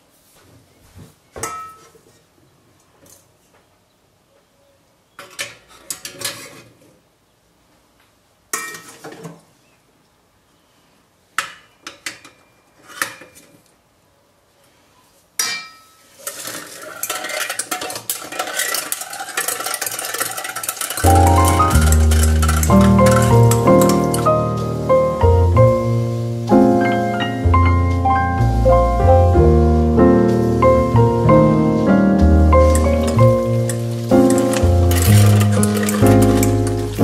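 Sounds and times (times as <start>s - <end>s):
blade scraping berries: 16.1s - 24.3s, 32.7s - 37.0s
food mill crank turning: 16.1s - 24.4s, 32.6s - 37.0s.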